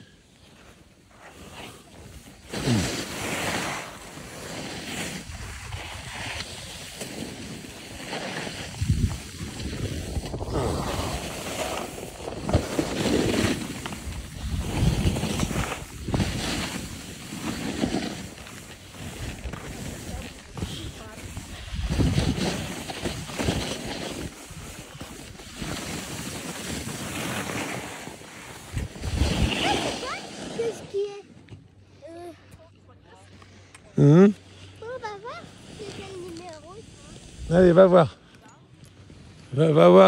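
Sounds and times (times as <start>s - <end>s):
skis scraping on packed snow: 0.0s - 32.3s, 33.0s - 40.0s
wind buffeting microphone: 8.6s - 17.0s, 19.3s - 24.8s.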